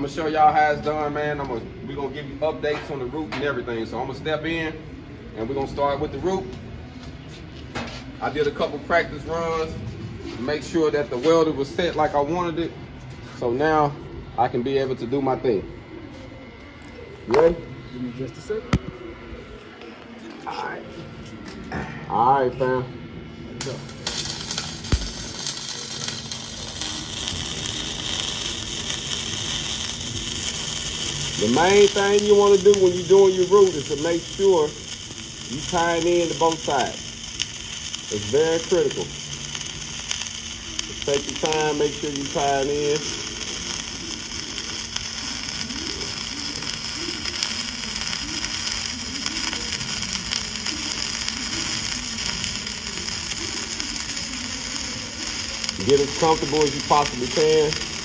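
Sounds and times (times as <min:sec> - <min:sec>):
welding arc crackling hiss: 0:00.0 - 0:19.0, 0:23.4 - 0:58.0
sharp pop: 0:24.9 - 0:25.2.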